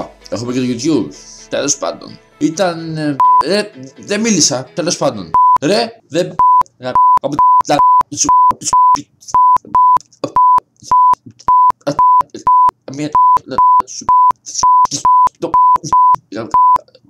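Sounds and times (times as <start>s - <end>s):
person speaking: 0.0s - 17.0s
censor bleeps: 3.2s - 3.5s, 5.4s - 5.6s, 6.4s - 16.8s.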